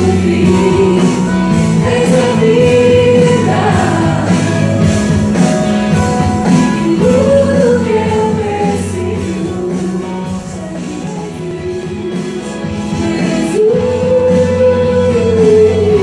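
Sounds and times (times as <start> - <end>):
woman singing into a microphone: 0.0 - 5.0, 6.4 - 16.0
instrumental backing with drum beat: 0.0 - 16.0.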